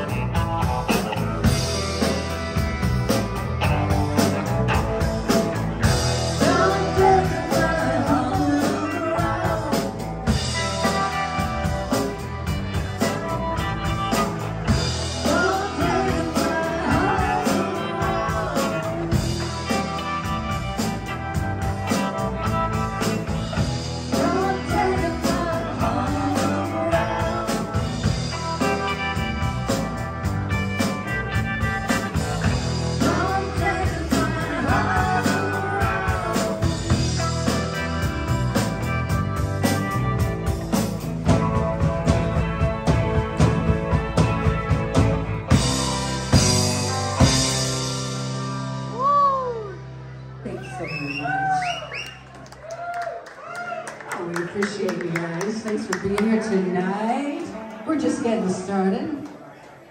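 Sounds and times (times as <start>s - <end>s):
rock band playing loudly: 0.0s - 58.7s
woman singing: 6.4s - 10.1s, 15.2s - 19.9s, 24.1s - 28.2s, 32.9s - 37.2s.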